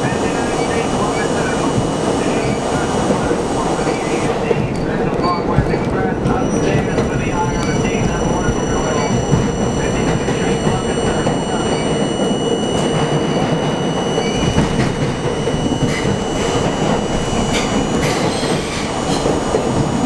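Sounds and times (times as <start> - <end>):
train wheels rumbling on rail: 0.0 - 20.0
thin high whines: 6.6 - 20.0.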